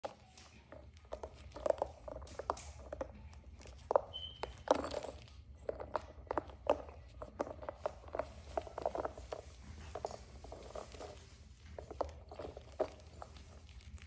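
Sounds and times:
paws scrabbling on a pad: 0.0s - 14.0s
puppies chewing rubber ball: 0.0s - 14.0s.

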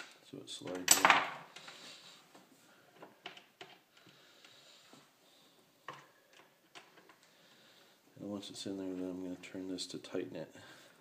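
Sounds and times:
faint clicks and taps: 5.8s - 7.4s.

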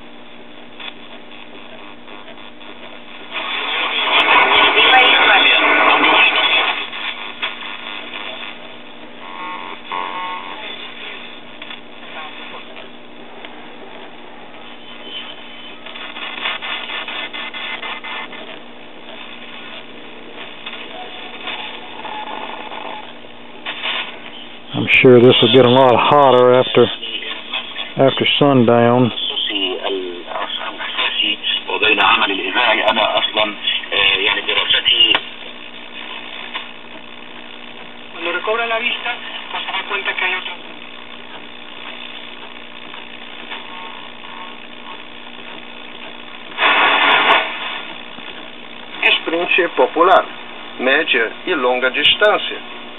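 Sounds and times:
light crackles: 0.0s - 4.7s, 5.9s - 24.7s, 35.1s - 38.2s, 39.0s - 49.6s
shortwave radio static: 0.0s - 52.9s
faint radio whistles: 14.5s - 19.9s, 20.6s - 26.2s.

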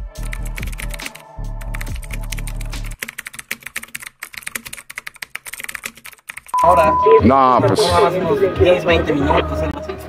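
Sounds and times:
low background music: 0.0s - 3.0s
rapid keyboard typing clicks: 0.2s - 6.6s.

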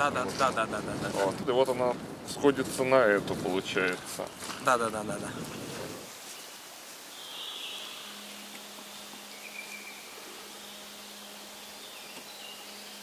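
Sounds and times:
faint hiss: 4.7s - 13.0s
low steady hum: 7.0s - 13.0s
high bird chirps: 7.1s - 13.0s.

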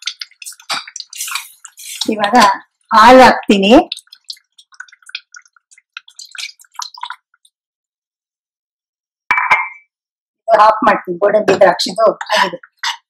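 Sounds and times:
wet squishing and dripping: 0.0s - 7.6s.

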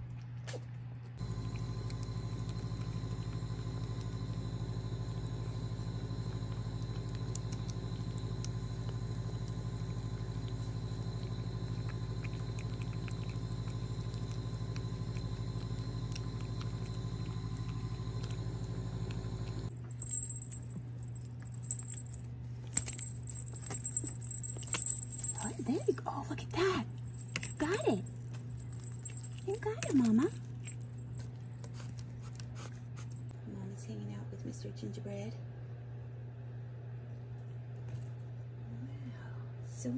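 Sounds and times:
steady low hum: 0.0s - 39.9s
cats eating clicks: 1.2s - 19.7s, 27.1s - 33.2s.

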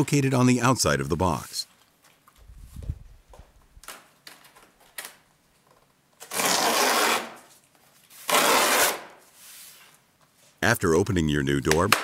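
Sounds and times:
cardboard tearing: 6.2s - 7.5s, 8.2s - 9.2s.

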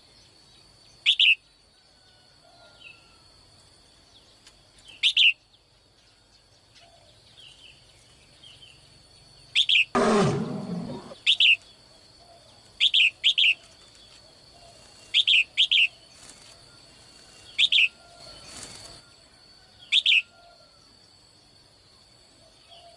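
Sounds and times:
sharp bird chirps: 1.0s - 1.4s, 4.9s - 5.5s, 9.5s - 11.7s, 14.6s - 16.2s, 17.4s - 19.0s, 19.8s - 20.3s
dinosaur roar sound effect: 9.9s - 11.2s.

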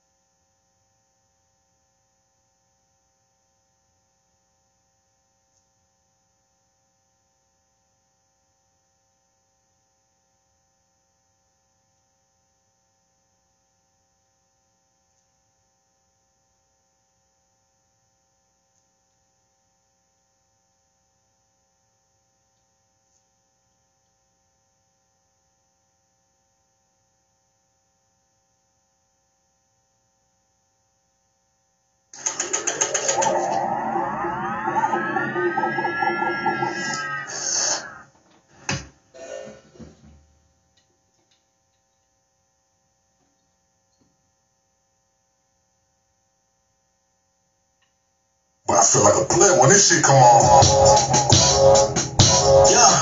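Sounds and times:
high whine: 32.2s - 38.1s, 48.7s - 53.0s
loud abrupt sound: 32.2s - 38.1s.

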